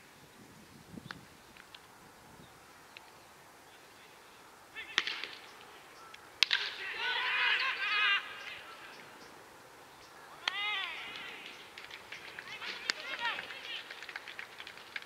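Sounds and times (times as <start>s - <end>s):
players shouting calls: 3.6s - 14.4s
bat cracking ball: 4.9s - 5.5s, 6.4s - 6.8s.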